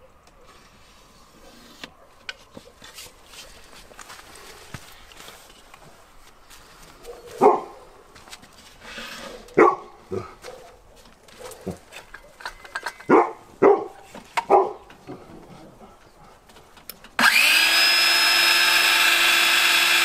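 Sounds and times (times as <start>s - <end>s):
dog barking: 7.0s - 8.0s, 9.4s - 12.4s, 13.1s - 14.9s.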